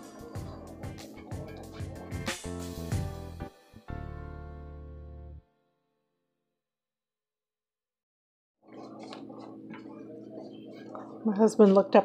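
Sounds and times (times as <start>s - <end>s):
whisk scraping and clicking in pan: 0.0s - 2.3s, 8.7s - 12.0s
background music: 0.0s - 5.6s.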